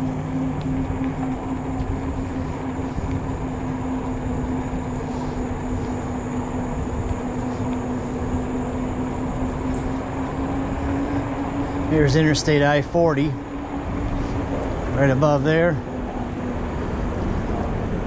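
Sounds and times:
tyre noise on asphalt: 0:00.0 - 0:18.0
wind rushing over microphone: 0:00.0 - 0:18.0.

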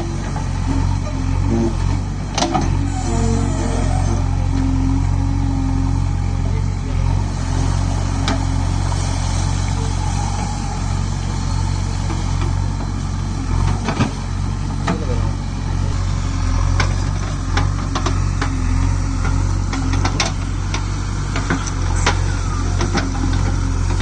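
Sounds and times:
diesel engine under load: 0:00.0 - 0:24.0.

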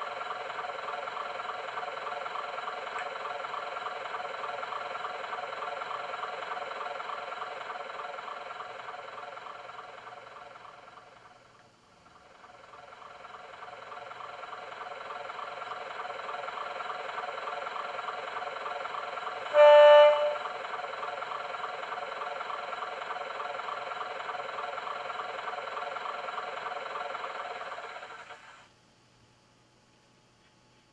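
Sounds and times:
recorded diesel engine idling: 0:00.0 - 0:28.7
electric horn blast: 0:19.5 - 0:20.5.

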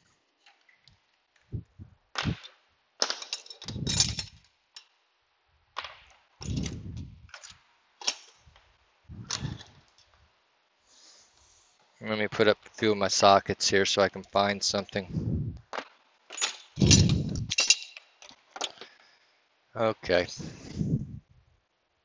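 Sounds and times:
metal tools clinking and clattering: 0:03.2 - 0:04.9, 0:16.3 - 0:18.8.

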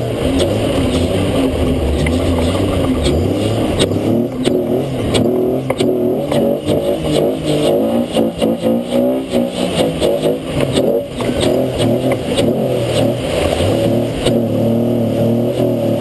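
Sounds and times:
off-road vehicle engine revving: 0:00.0 - 0:16.0
sharp knocks and clatter: 0:01.9 - 0:07.7.

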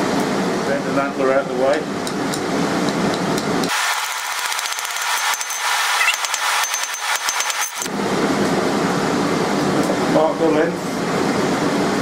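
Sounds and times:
hammer striking steel on anvil: 0:04.7 - 0:07.9.

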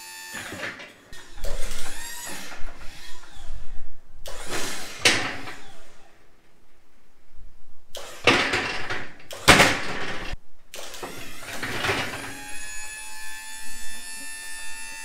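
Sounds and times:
hydraulic pump rushing and scraping: 0:00.4 - 0:06.2, 0:07.9 - 0:13.2.

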